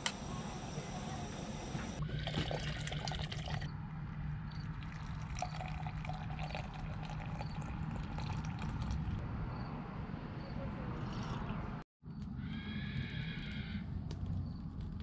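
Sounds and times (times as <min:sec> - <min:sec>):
coffee trickling into a mug: 0:02.0 - 0:03.7, 0:04.8 - 0:09.0.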